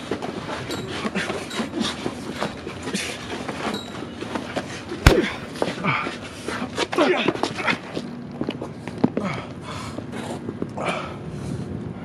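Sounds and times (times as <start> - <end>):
sharp knock: 5.1 - 5.5.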